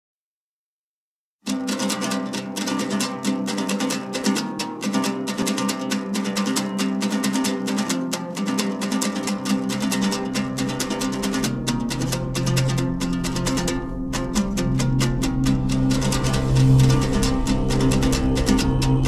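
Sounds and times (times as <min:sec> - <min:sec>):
plucked string instrument strumming: 0:01.5 - 0:19.0
held low tones: 0:09.8 - 0:19.0
deep bass: 0:10.3 - 0:19.0.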